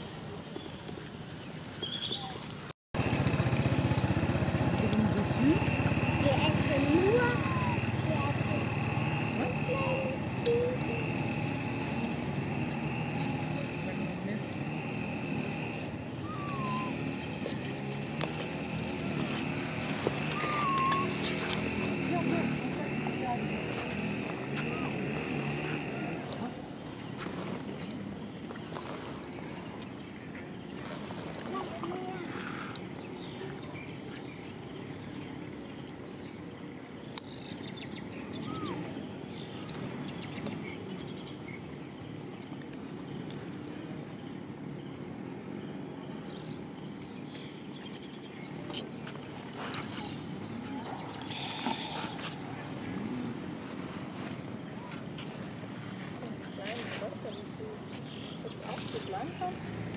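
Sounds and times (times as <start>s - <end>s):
faint insects: 0.0s - 59.9s
bird chirps: 0.6s - 2.7s, 15.6s - 17.8s, 20.2s - 23.0s, 28.2s - 42.2s, 49.6s - 52.6s
motor-like background hum: 3.0s - 59.9s
short whistled call: 16.2s - 17.1s, 20.3s - 21.4s.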